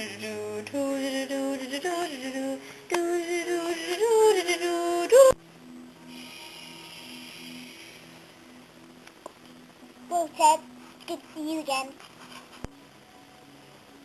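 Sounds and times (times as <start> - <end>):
person singing wordless tune: 0.0 - 5.4.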